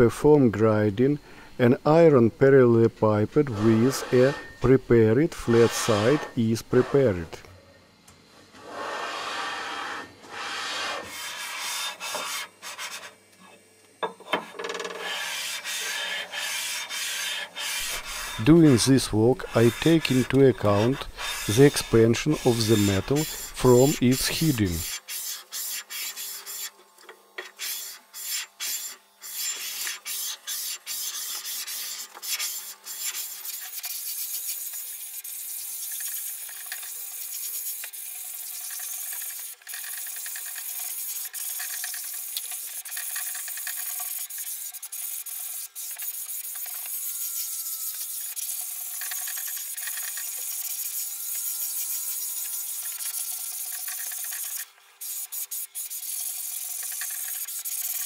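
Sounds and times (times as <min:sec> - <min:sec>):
metal bar scraping metal plate: 0:03.4 - 0:04.8, 0:05.4 - 0:07.1, 0:14.8 - 0:24.8.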